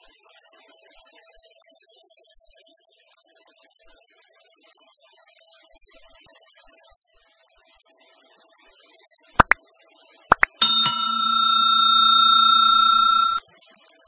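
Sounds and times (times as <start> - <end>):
bell ringing: 10.3 - 13.4.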